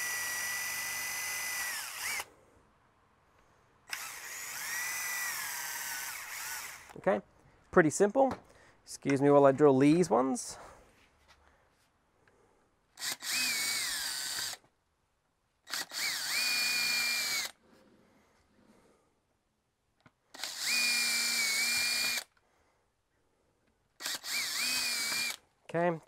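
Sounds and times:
power drill boring into wood: 0:00.0 - 0:02.3, 0:03.9 - 0:07.0, 0:13.0 - 0:14.6, 0:15.7 - 0:17.6, 0:20.4 - 0:22.3, 0:24.0 - 0:25.4.

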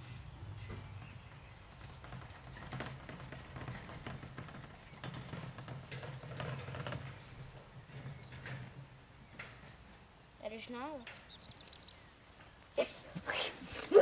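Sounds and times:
grass rustling and crackling: 0:10.4 - 0:14.0.

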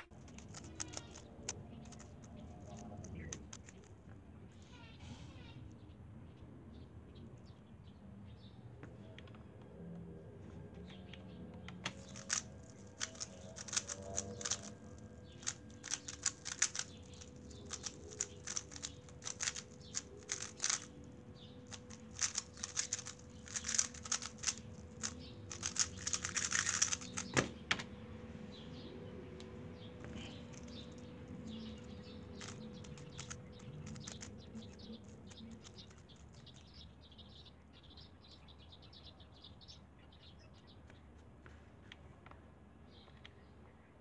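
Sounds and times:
speed cube plastic clicking: 0:00.0 - 0:03.9, 0:11.9 - 0:21.1, 0:21.7 - 0:27.4, 0:30.4 - 0:36.7.

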